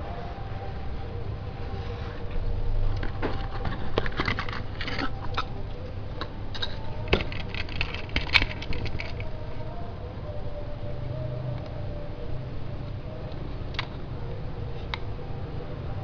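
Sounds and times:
plastic toy clicks and scrapes: 3.0s - 5.5s, 6.6s - 9.3s.

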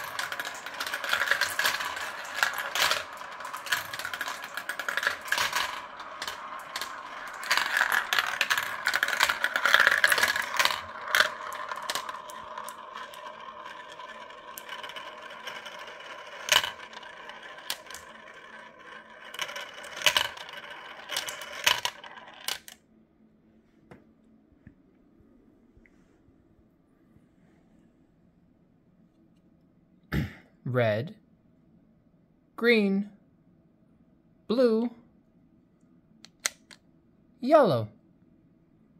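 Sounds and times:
marbles clattering through plastic run: 0.0s - 22.8s.

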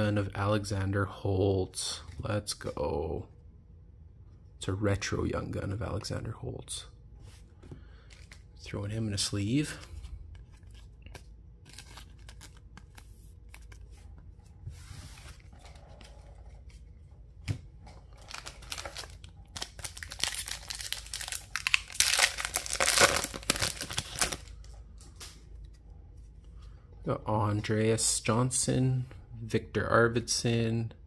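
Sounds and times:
foil wrapper tearing and crinkling: 18.2s - 24.5s.

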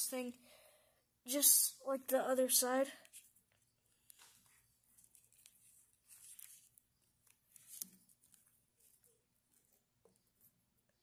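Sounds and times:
small rubbing and clicking sounds: 3.0s - 11.0s.

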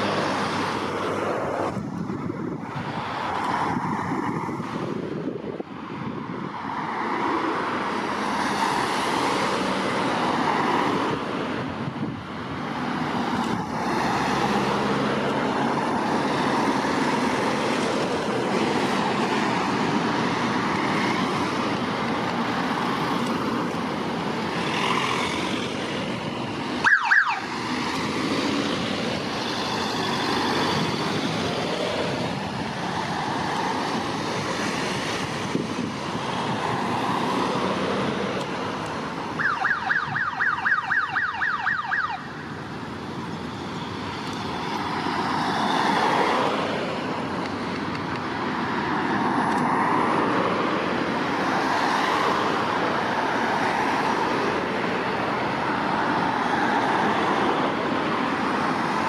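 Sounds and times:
traffic noise: 0.0s - 59.0s
short siren yelps: 26.8s - 27.5s.

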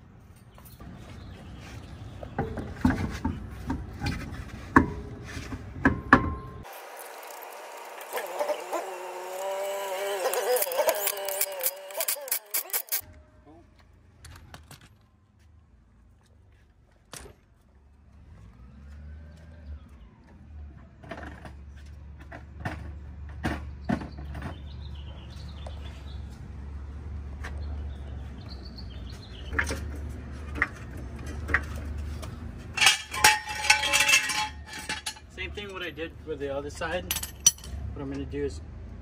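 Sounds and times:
metallic clicks of tools: 10.6s - 13.0s
floor jack clinking and rattling: 32.7s - 35.3s.

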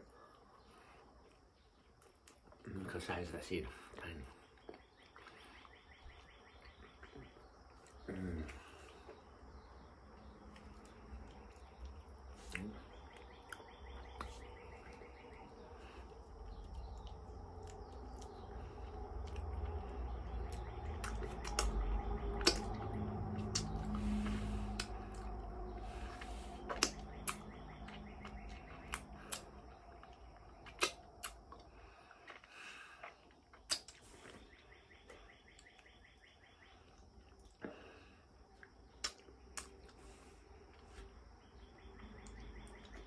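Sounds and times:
low rumble: 8.4s - 32.1s
wet mouth smacks while eating: 26.7s - 27.4s, 30.6s - 31.7s, 33.0s - 34.0s.

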